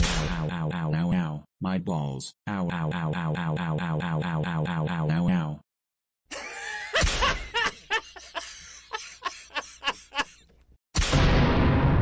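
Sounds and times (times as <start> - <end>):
boy's cartoon laugh: 6.3 - 10.5.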